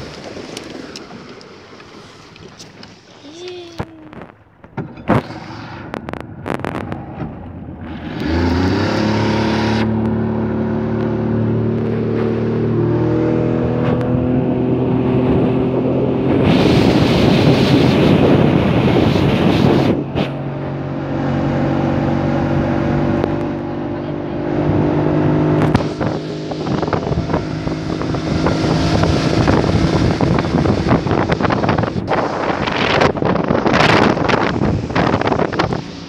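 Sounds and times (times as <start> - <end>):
water rushing: 0.0 - 7.0, 7.8 - 36.0
outboard motor running: 0.0 - 36.0
wind on microphone: 7.8 - 36.0.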